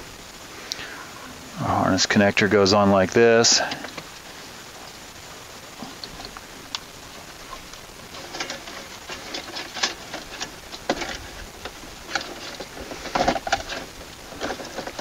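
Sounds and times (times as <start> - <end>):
plastic clicking and scraping: 7.6 - 15.0.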